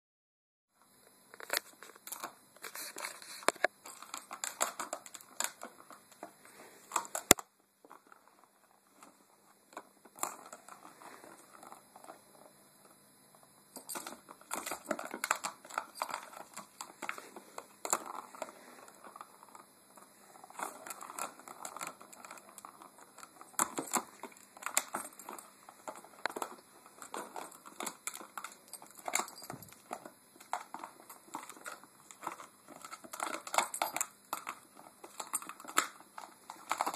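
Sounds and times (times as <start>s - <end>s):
plastic toy clicking and rattling: 1.4s - 6.2s, 13.8s - 19.5s, 20.4s - 36.9s.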